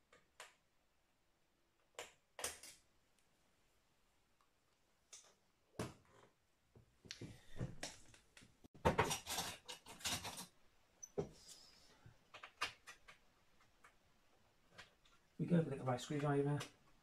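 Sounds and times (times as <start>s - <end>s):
metal parts clicking and knocking: 9.0s - 10.6s.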